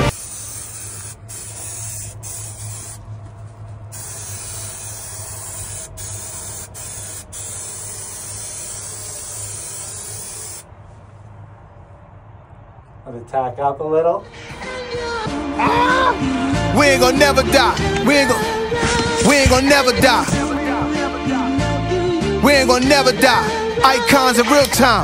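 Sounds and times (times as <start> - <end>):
aerosol spray hissing: 0.0 - 3.0, 3.9 - 10.7.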